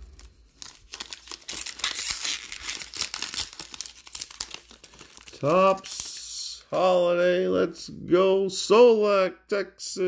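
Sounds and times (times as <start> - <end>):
wrapper crinkling and tearing: 0.0 - 7.2.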